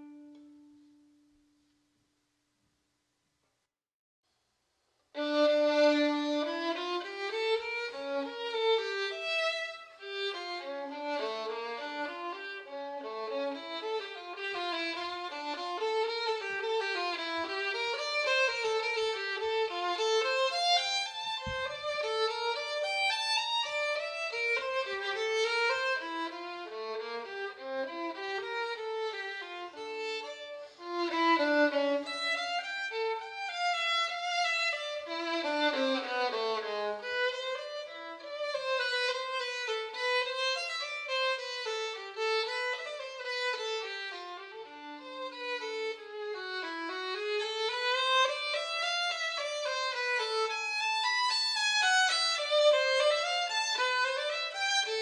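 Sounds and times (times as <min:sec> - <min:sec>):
instrumental melody: 0:00.0 - 0:01.6.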